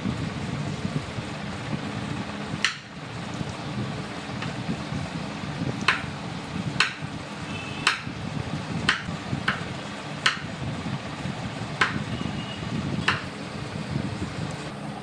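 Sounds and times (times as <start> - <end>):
low background hum: 0.0 - 15.0
knife knocking on cutting board: 11.8 - 12.0.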